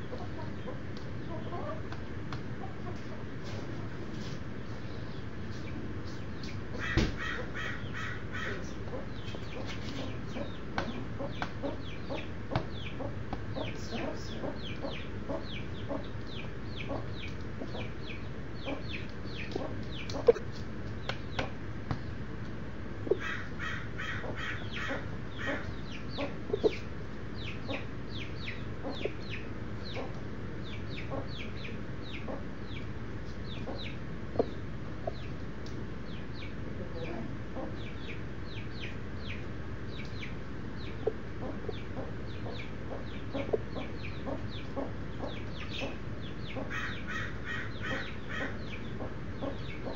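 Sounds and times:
chicks peeping: 0:00.0 - 0:49.9.

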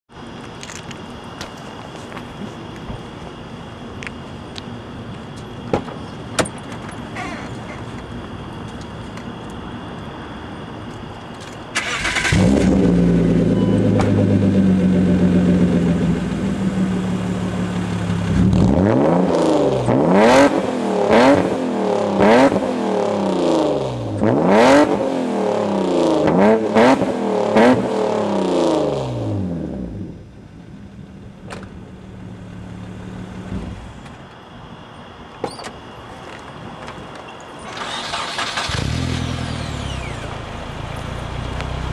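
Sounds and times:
car engine idling: 0:11.8 - 0:18.7, 0:30.2 - 0:34.0, 0:38.0 - 0:41.9
car engine revving: 0:11.8 - 0:30.1, 0:37.8 - 0:41.9
car door shutting: 0:13.7 - 0:14.4.

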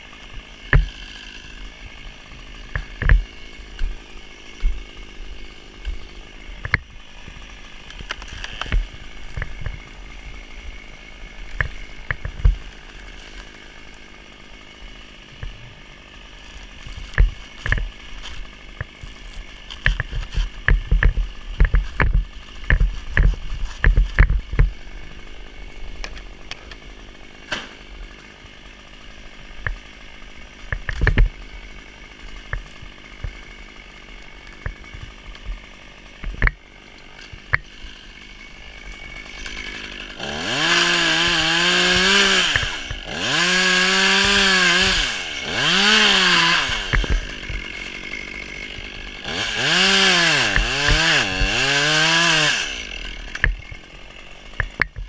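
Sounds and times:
wood cracking and knocking: 0:00.6 - 0:01.1, 0:01.8 - 0:09.8, 0:11.5 - 0:13.6, 0:16.6 - 0:25.2, 0:29.6 - 0:31.4, 0:32.1 - 0:36.6, 0:45.6 - 0:52.3, 0:53.3 - 0:55.0
hand saw rasping: 0:16.3 - 0:55.0.

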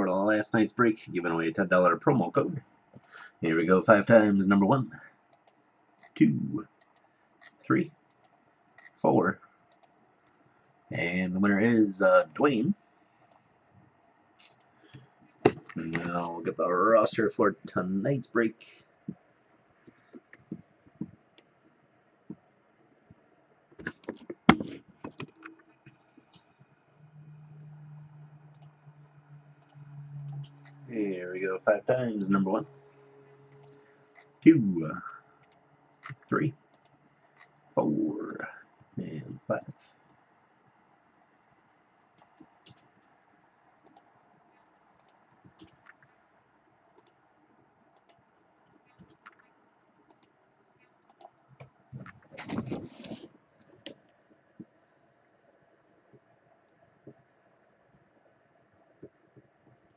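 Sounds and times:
mouse and keyboard clicks: 0:33.5 - 0:34.3.

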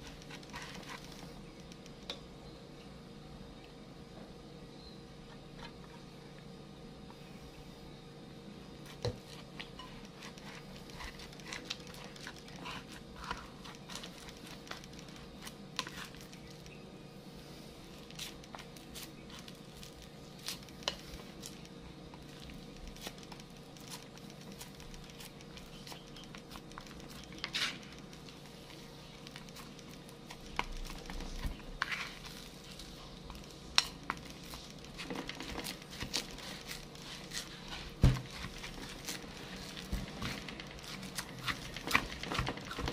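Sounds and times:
spatula scraping mixture: 0:08.8 - 0:16.7, 0:22.2 - 0:42.9.

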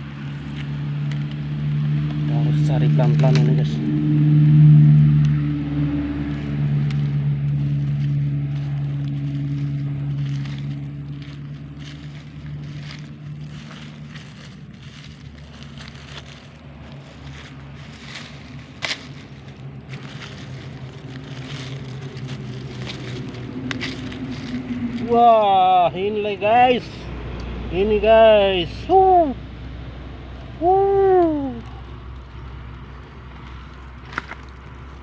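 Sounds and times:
steady low hum: 0:00.0 - 0:35.0.

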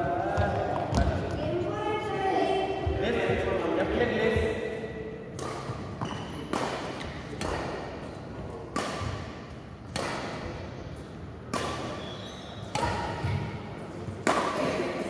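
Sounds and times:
rackets hitting shuttlecock: 0:05.3 - 0:15.0.

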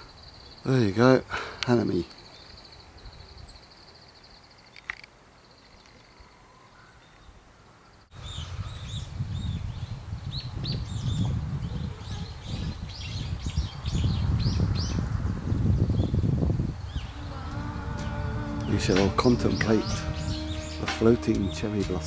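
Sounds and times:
birds chirping: 0:00.0 - 0:22.0
low rumble on microphone: 0:08.2 - 0:22.0.

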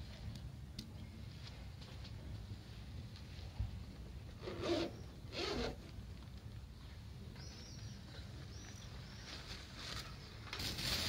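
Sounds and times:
cardboard and foil rustling scrape: 0:09.6 - 0:11.0.

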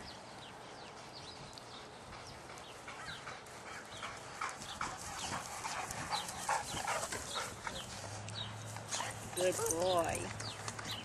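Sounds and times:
dog panting: 0:00.8 - 0:08.3.

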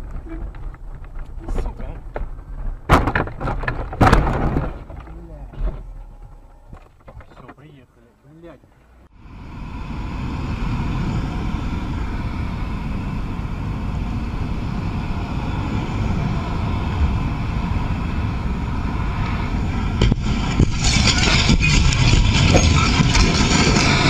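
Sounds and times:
wind and road noise: 0:00.0 - 0:24.0
sharp knocks: 0:02.1 - 0:06.0
harsh rushing noise: 0:09.2 - 0:24.0.

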